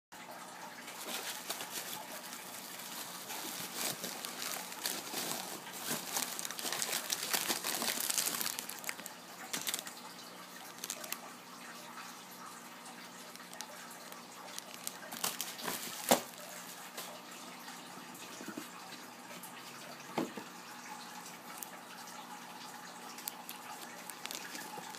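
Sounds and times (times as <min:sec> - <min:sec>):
bubble wrap crinkling: 0:00.9 - 0:10.0, 0:10.6 - 0:11.2, 0:13.3 - 0:16.6, 0:23.1 - 0:24.9.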